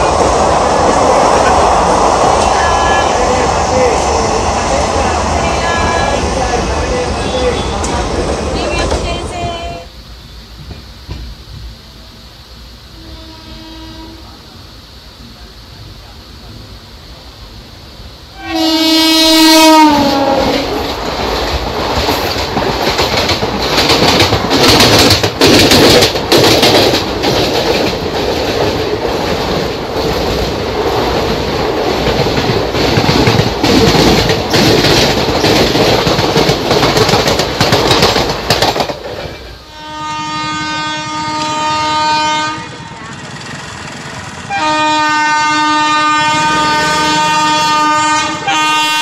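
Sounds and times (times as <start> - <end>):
train rumbling past: 0.0 - 49.0
locomotive horn: 12.9 - 14.3, 18.3 - 20.8, 39.7 - 43.0, 44.5 - 49.0
wheels clacking over rail joints: 20.8 - 39.6.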